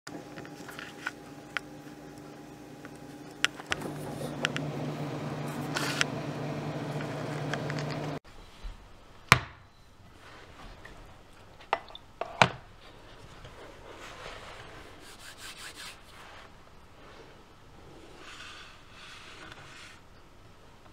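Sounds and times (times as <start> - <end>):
refrigerator humming: 0.1 - 8.2.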